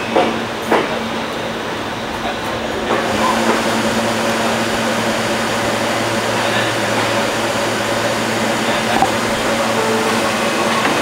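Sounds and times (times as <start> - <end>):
subway car electrical hum: 0.0 - 11.0.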